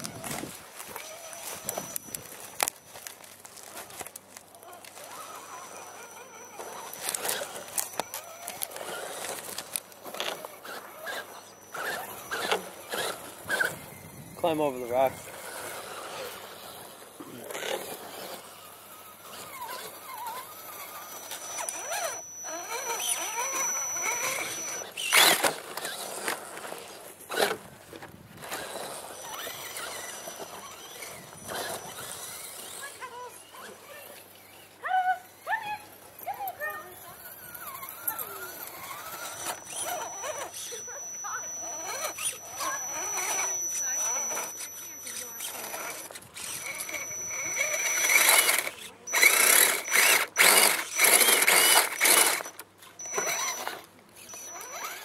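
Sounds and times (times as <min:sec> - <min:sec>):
toy car motor whining: 0:00.0 - 0:55.0
faint voices: 0:29.8 - 0:55.0
toy truck clattering onto rock: 0:45.4 - 0:52.6.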